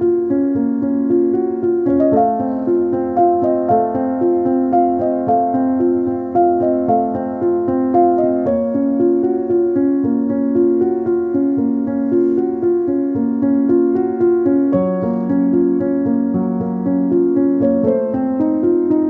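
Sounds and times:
piano-like keyboard music: 0:00.0 - 0:19.0.

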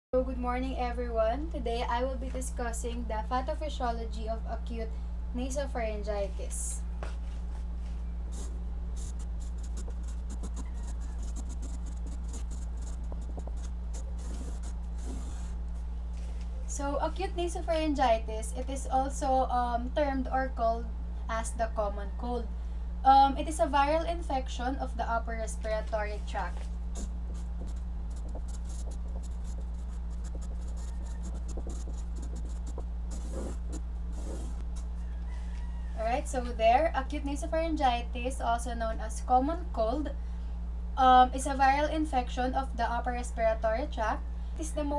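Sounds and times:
steady low hum: 0:00.1 - 0:44.9
marker pen scratching on paper: 0:08.3 - 0:15.6, 0:26.5 - 0:34.9.

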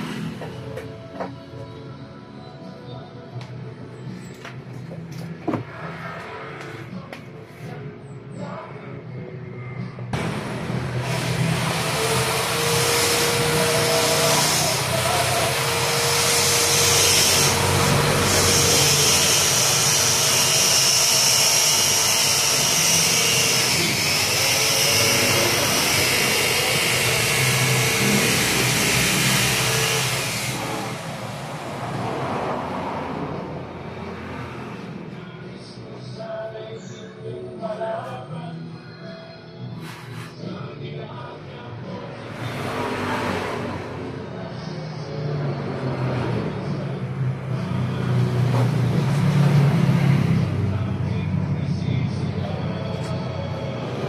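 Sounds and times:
mechanical noise with whine: 0:03.9 - 0:32.0.

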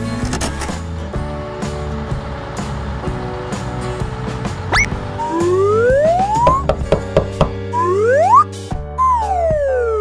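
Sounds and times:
cartoon background music: 0:04.6 - 0:10.0
rising glide sound effect: 0:04.7 - 0:06.7, 0:07.7 - 0:10.0.

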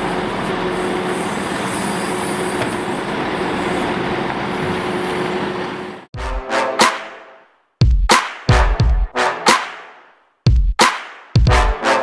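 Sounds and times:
diesel truck engine running: 0:00.0 - 0:06.1.

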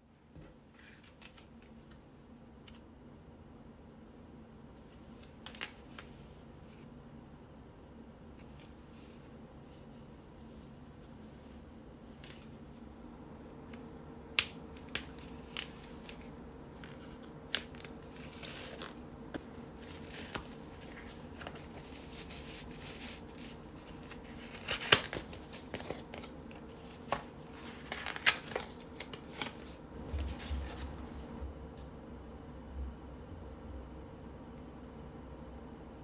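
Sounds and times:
paper and cardboard rustling: 0:14.8 - 0:31.4.

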